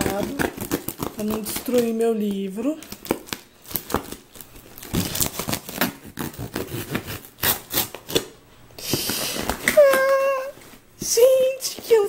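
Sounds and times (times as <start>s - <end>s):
knife scraping plastic and cardboard: 0.0s - 1.9s, 5.0s - 10.1s.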